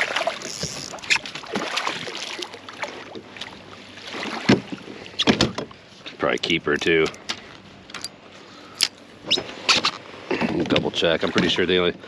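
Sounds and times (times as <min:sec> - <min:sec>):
landing net plunging into water: 0:00.0 - 0:03.2.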